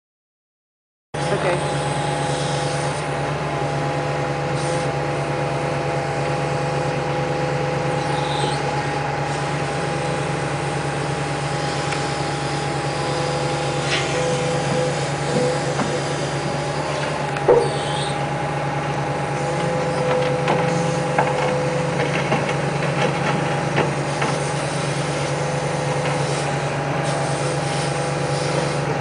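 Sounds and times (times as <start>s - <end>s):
excavator engine humming with whine: 1.2s - 29.0s.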